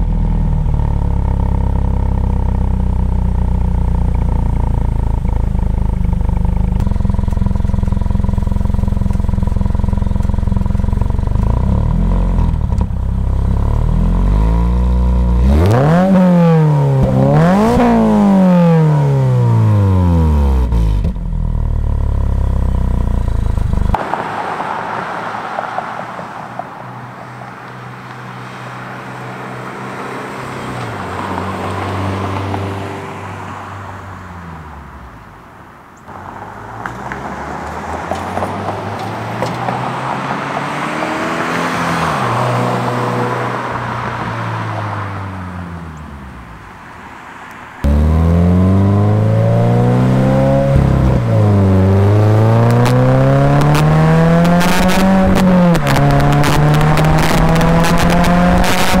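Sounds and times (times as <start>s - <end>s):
car accelerating past: 23.9s - 33.7s, 36.1s - 46.4s, 47.4s - 59.0s
car engine revving from idle: 47.8s - 59.0s.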